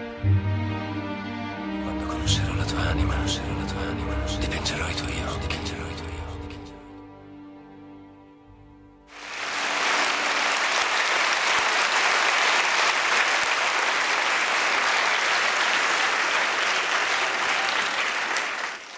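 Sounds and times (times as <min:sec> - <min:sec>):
audience applauding: 0:09.1 - 0:18.9.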